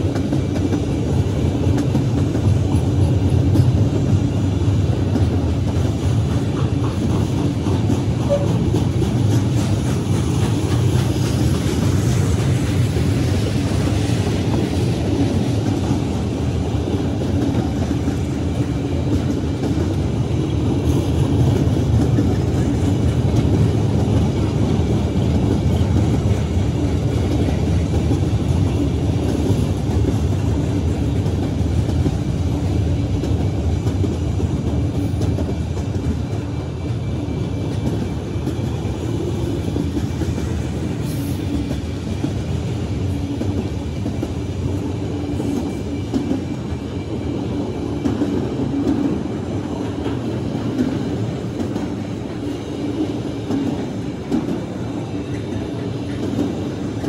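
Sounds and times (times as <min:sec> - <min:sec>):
freight train wheels rumbling on rails: 0:00.0 - 0:57.0.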